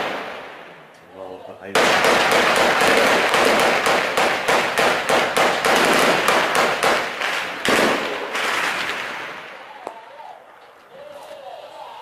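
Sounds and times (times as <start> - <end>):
rapid echoing gunshots: 1.7 - 9.6.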